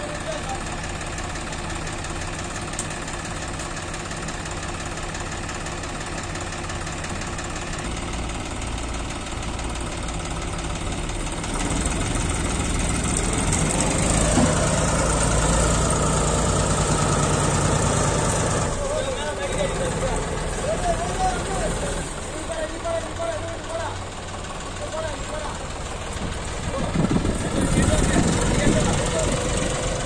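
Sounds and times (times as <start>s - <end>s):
heavy diesel engines running: 0.0s - 30.0s.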